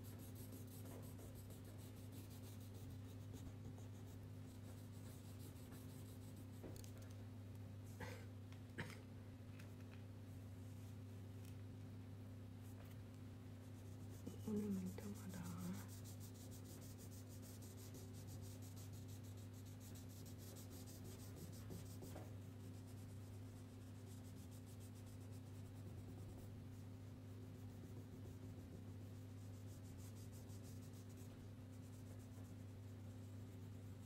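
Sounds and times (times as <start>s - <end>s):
crayon scratching on paper: 0.0s - 6.6s, 13.7s - 34.0s
steady low hum: 0.0s - 34.0s.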